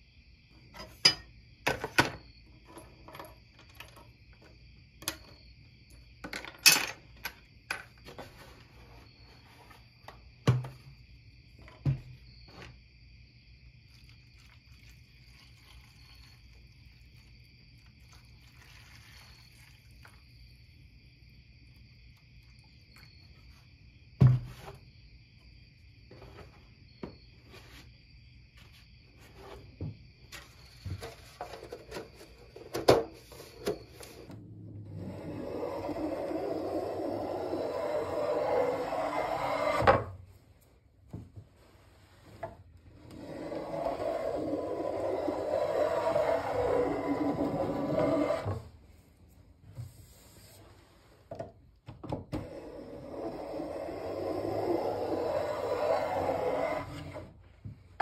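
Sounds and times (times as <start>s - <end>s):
liquid pouring: 18.1s - 20.1s.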